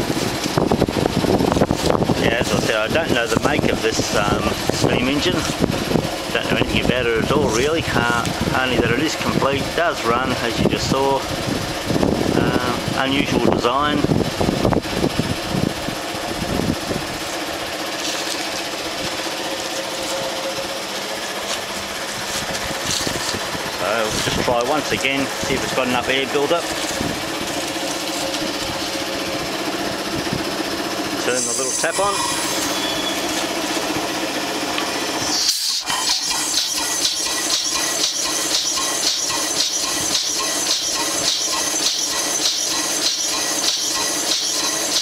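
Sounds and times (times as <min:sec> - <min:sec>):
engine exhaust puffs: 0:00.0 - 0:31.2
air compressor running: 0:00.0 - 0:45.0
rapid mechanical chatter: 0:00.0 - 0:45.0
short hiss of air: 0:35.2 - 0:36.7.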